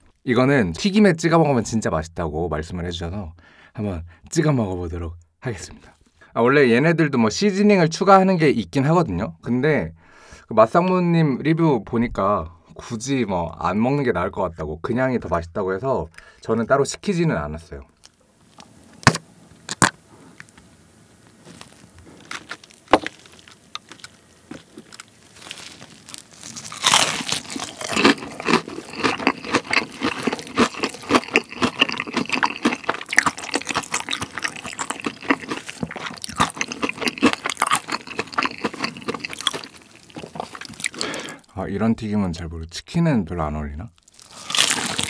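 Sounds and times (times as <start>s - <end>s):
crunchy chewing: 19.7s - 41.5s, 44.0s - 45.0s
crunchy bite into fried chicken: 21.4s - 41.5s, 44.0s - 45.0s.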